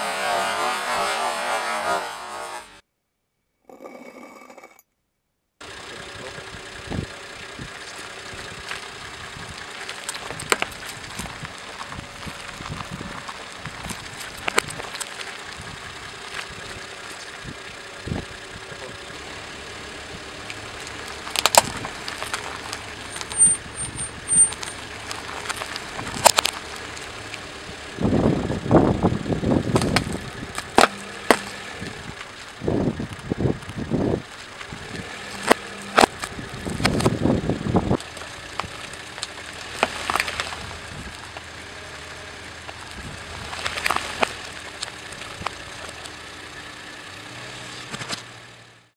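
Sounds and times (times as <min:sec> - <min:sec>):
car engine idling: 0:05.6 - 0:48.9
dense crunching: 0:07.8 - 0:17.4, 0:20.3 - 0:28.9, 0:29.5 - 0:46.2
fruit squashing under car tyre: 0:09.8 - 0:15.7, 0:20.5 - 0:23.5, 0:24.4 - 0:27.4, 0:29.6 - 0:33.7, 0:34.3 - 0:41.6, 0:42.6 - 0:46.2.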